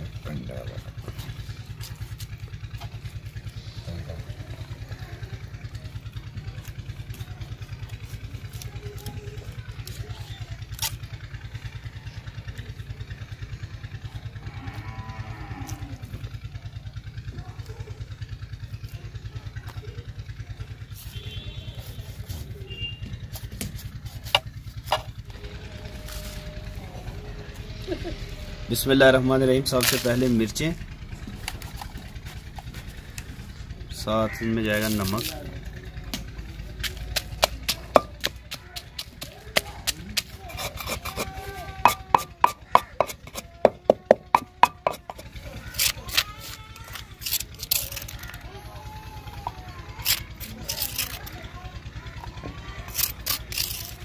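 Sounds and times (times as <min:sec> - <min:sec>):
small engine running: 0:00.0 - 0:54.0
pestle pounding in stone mortar: 0:23.6 - 0:25.1, 0:36.8 - 0:46.3
spoon scraping in mortar: 0:39.8 - 0:48.4, 0:49.4 - 0:51.4, 0:52.8 - 0:54.0.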